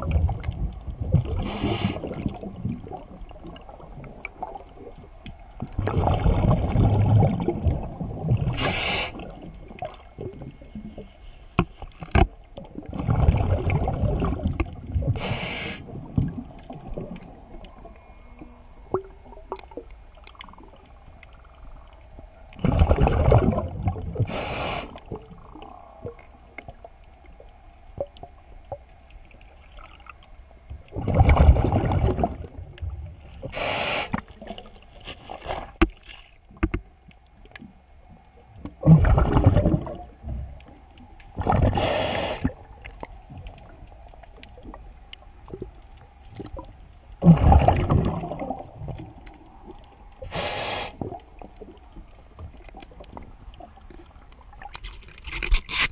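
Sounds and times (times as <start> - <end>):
exhaled bubbles rumbling underwater: 0.0 - 54.9
regulator hiss: 1.4 - 2.1, 8.5 - 9.4, 15.1 - 16.0, 24.2 - 25.2, 33.3 - 34.4, 41.7 - 42.8, 50.2 - 51.2.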